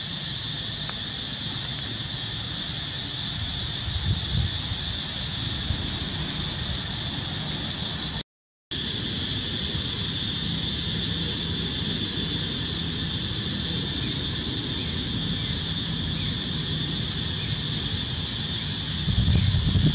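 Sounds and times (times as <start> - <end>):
insects droning: 0.0 - 19.9.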